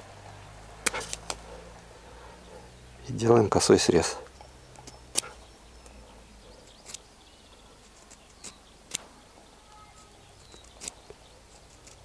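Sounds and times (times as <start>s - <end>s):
knife scraping wood: 0.9s - 1.4s.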